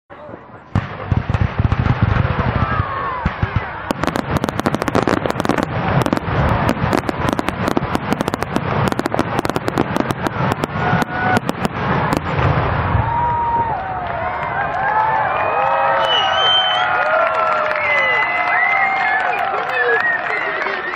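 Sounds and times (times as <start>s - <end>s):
fireworks crackling bangs: 0.7s - 15.2s
crowd cheering: 1.8s - 5.7s, 10.4s - 20.9s.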